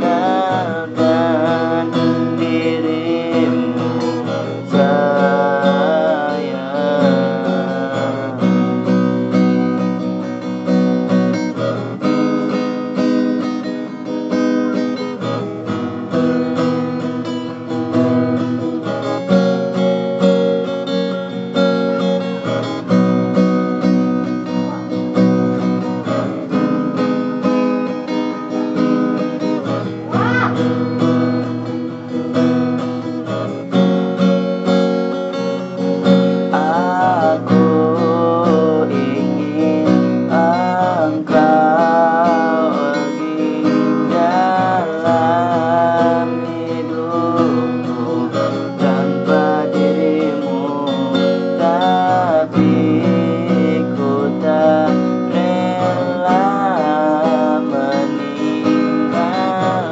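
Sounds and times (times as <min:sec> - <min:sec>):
man singing: 0:00.0 - 0:09.7, 0:35.4 - 0:59.9
acoustic guitar strumming chords: 0:00.0 - 0:59.9.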